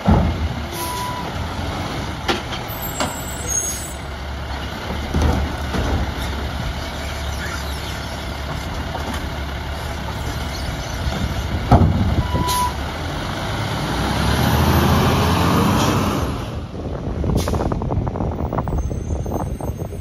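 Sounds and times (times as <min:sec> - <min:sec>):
garbage truck diesel engine: 0:00.0 - 0:20.0.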